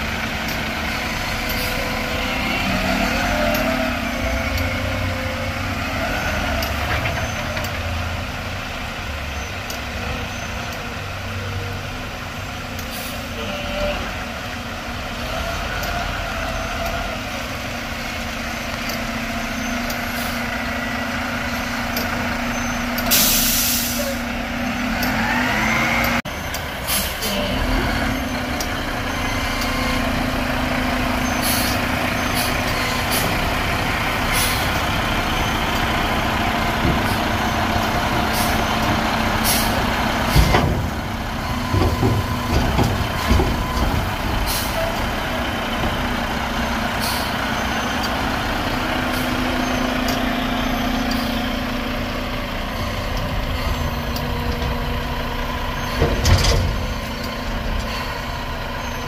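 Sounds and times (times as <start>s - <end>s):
garbage truck engine running: 0.0s - 59.0s
reversing beeper: 18.5s - 59.0s
air brake hisses: 23.1s - 24.3s
metal dumpster clanks: 36.6s - 46.3s, 52.6s - 58.4s.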